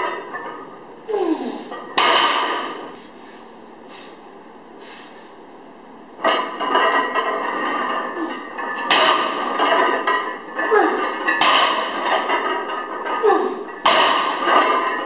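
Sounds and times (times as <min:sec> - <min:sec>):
barbell crashing onto platform: 0:01.7 - 0:03.0, 0:06.2 - 0:15.0.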